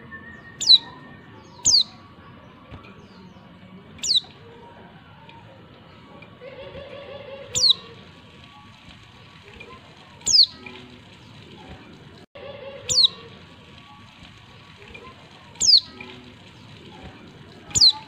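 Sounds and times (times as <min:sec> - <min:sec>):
bird calling with sharp descending notes: 0:00.0 - 0:02.0, 0:06.9 - 0:08.0, 0:10.3 - 0:10.7, 0:12.8 - 0:13.3.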